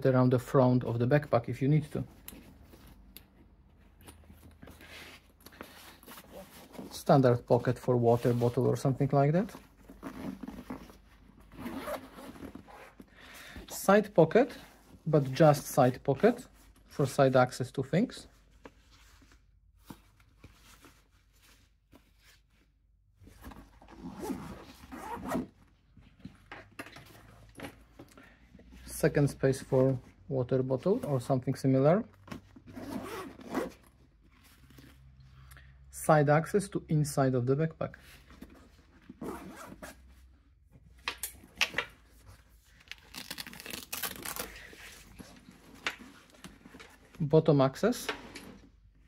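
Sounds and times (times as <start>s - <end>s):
backpack fabric rustling: 1.8s - 17.0s, 18.4s - 26.3s, 32.2s - 35.0s, 38.1s - 40.3s, 41.4s - 47.3s
fabric rustling: 2.0s - 13.1s.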